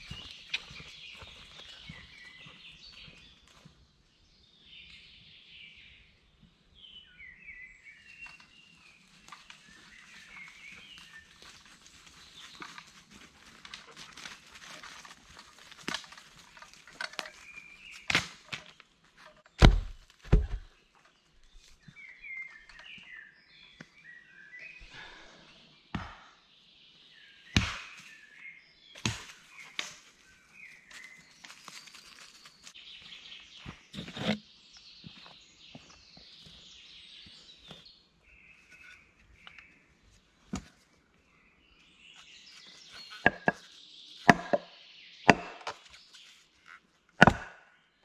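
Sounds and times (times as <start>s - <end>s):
footsteps on forest floor: 0.0s - 3.8s, 8.2s - 24.0s, 29.0s - 40.9s
birds chirping: 0.0s - 48.0s
wooden logs thunking: 18.1s - 20.7s, 44.3s - 44.6s, 47.2s - 47.6s.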